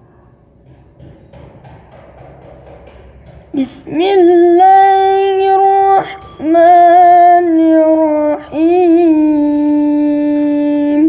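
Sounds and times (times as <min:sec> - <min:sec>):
boy chanting: 0:03.6 - 0:11.0.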